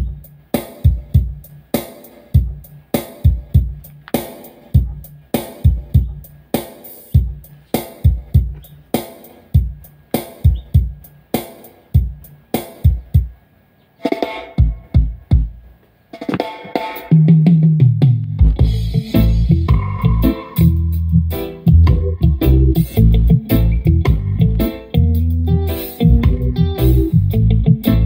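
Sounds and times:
drum hits: 0:00.0 - 0:13.3, 0:14.1 - 0:15.6, 0:16.2 - 0:20.8, 0:21.7 - 0:24.7
music through loudspeaker: 0:00.0 - 0:13.4, 0:14.0 - 0:28.0
chords: 0:18.0 - 0:28.0
deep bass line: 0:18.0 - 0:28.0.

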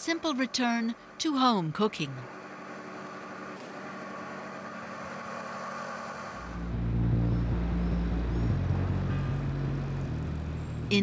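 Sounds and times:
low rumbling drone: 0:06.4 - 0:11.0.

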